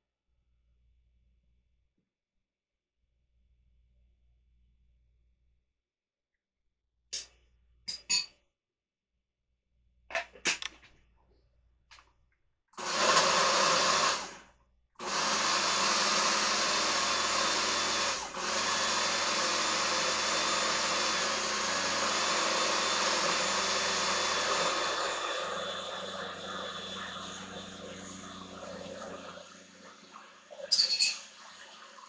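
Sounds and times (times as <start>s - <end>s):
blender running: 12.8s - 30.6s.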